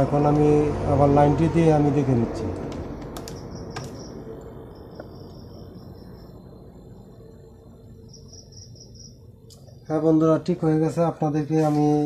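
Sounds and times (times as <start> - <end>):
faint steady hum: 0.0 - 12.0
faint high chirping: 3.3 - 9.9.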